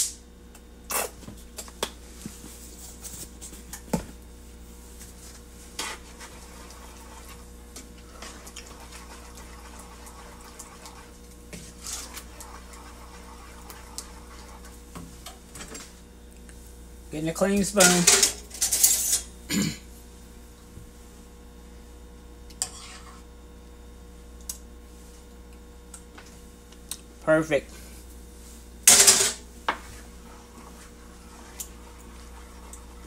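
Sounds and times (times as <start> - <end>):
steady low hum: 0.0 - 33.0
spoon stirring beans in pot: 5.8 - 14.8, 22.6 - 23.2, 29.8 - 33.0.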